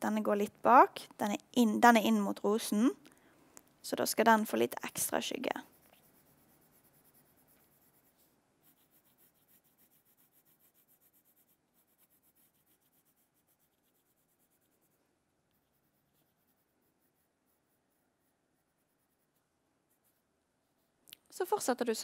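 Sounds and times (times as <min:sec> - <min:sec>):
pencil scratching on paper: 0:04.9 - 0:21.0.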